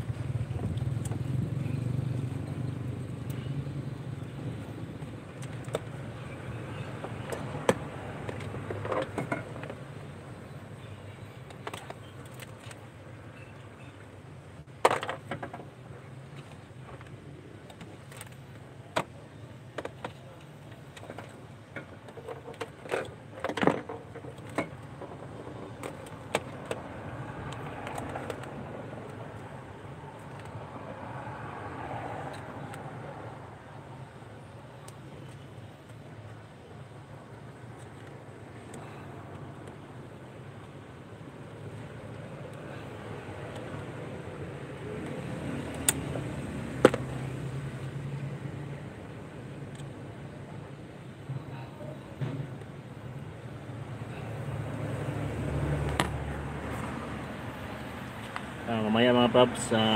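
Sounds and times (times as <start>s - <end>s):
pliers and wires clicking: 45.0s - 47.1s.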